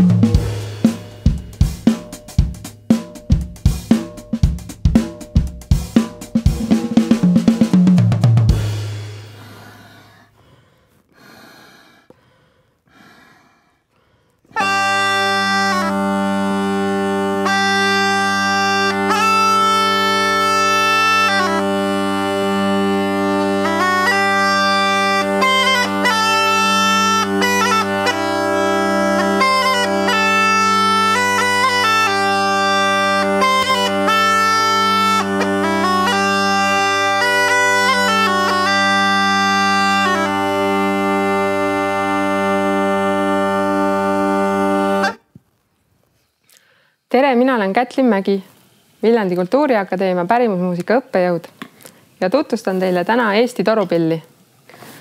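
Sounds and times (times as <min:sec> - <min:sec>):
drum kit and cymbal hits: 0:00.0 - 0:09.6
bagpipe melody over drones: 0:14.6 - 0:45.2.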